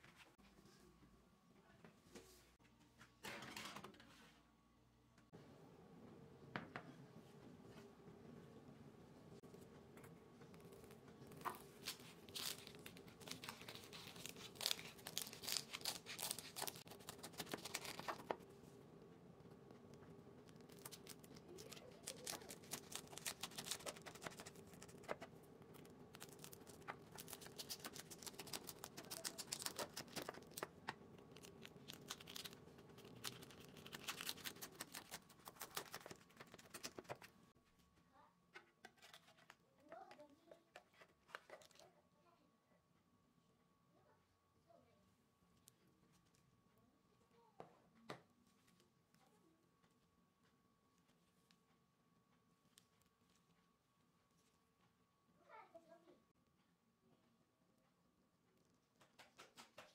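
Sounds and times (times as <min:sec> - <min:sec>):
knife crunching through crisp crust: 0:11.5 - 0:18.3, 0:20.6 - 0:25.2, 0:31.3 - 0:37.2.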